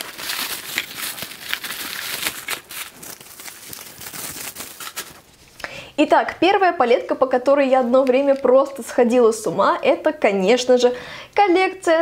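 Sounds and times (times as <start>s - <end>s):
bubble wrap crinkling: 0.0s - 5.6s.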